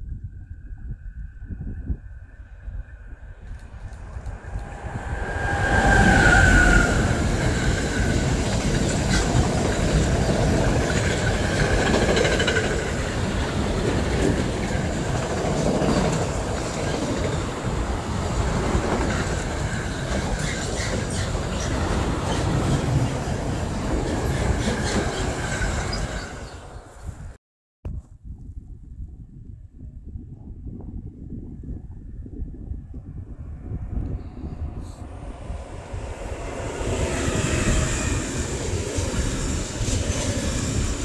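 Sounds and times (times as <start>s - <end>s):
high steady whine: 0.1s - 9.7s
train passing: 2.6s - 27.0s, 33.4s - 41.0s
wheels rumbling on rails: 3.3s - 27.0s, 33.0s - 41.0s.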